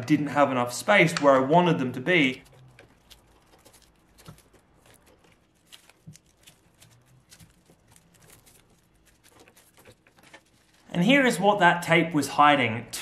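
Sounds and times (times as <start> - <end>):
rustling of wiring and tape: 0.9 - 11.2.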